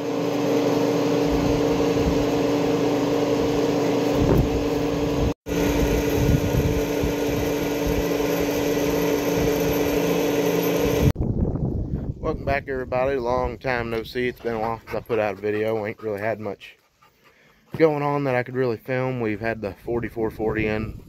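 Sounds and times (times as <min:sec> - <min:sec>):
electric pump humming: 0:00.0 - 0:11.2.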